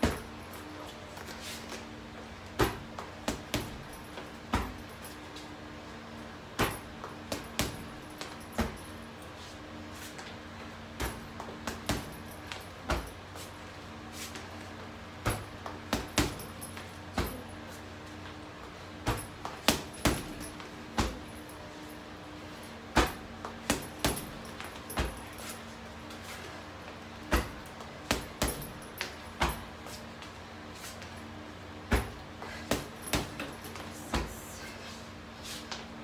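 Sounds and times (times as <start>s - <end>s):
punches thudding on punching bag: 0.0s - 0.4s, 2.5s - 5.2s, 6.5s - 9.0s, 10.9s - 13.2s, 15.2s - 17.6s, 19.0s - 21.5s, 22.9s - 25.4s, 27.2s - 29.8s, 31.8s - 34.5s
steady low hum: 0.0s - 36.0s.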